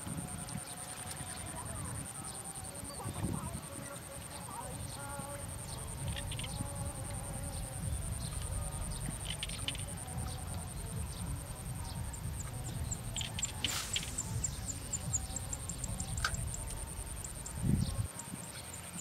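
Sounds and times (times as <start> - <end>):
faint chirps and ticks: 0.0 - 19.0
high-pitched buzz: 4.8 - 19.0
quick faint pulses: 5.4 - 18.1.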